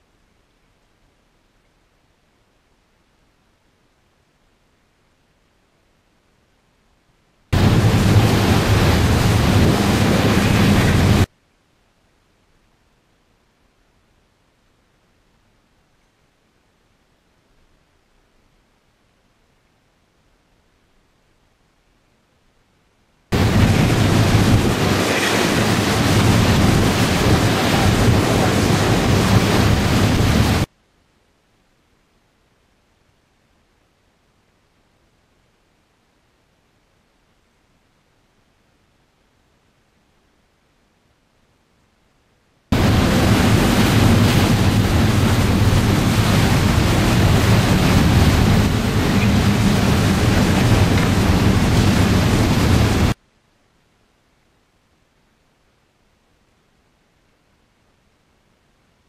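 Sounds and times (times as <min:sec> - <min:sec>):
churning water: 0:07.6 - 0:11.3, 0:23.3 - 0:30.7, 0:42.8 - 0:53.2
low boat engine drone: 0:07.6 - 0:11.3, 0:23.3 - 0:30.6, 0:42.8 - 0:53.2
wind buffeting the microphone: 0:07.6 - 0:11.3, 0:23.3 - 0:30.7, 0:42.7 - 0:53.2.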